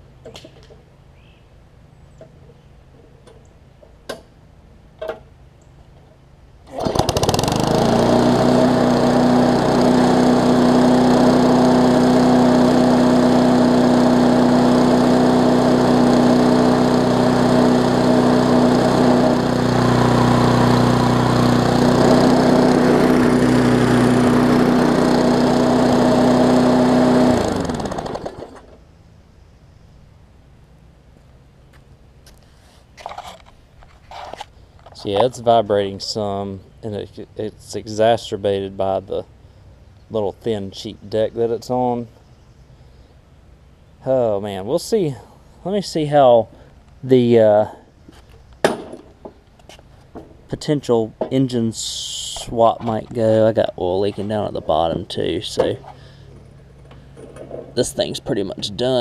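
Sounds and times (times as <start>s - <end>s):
lawn mower engine running: 6.6s - 28.9s, 42.8s - 59.0s
mower deck vibrating: 6.7s - 28.8s, 48.2s - 59.0s.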